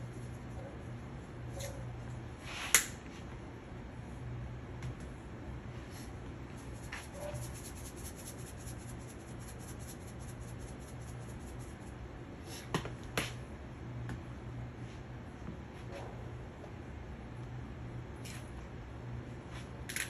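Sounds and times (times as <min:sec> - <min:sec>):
low steady hum: 0:00.0 - 0:20.0
spice shaker shaken rapidly: 0:06.6 - 0:12.0.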